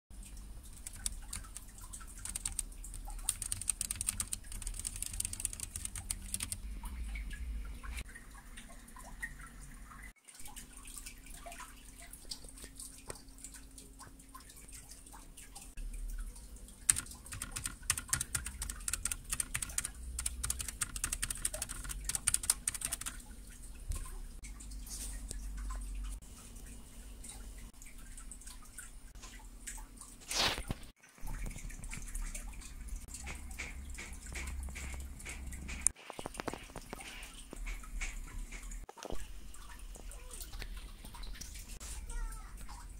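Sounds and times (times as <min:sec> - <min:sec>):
mechanical keyboard typing: 0:00.7 - 0:06.6, 0:16.9 - 0:23.2.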